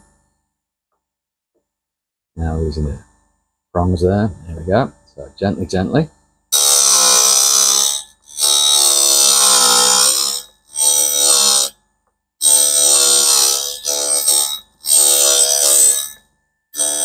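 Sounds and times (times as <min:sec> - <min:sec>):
drill bit sharpener grinding: 0:06.6 - 0:11.8, 0:12.4 - 0:16.2, 0:16.8 - 0:17.0.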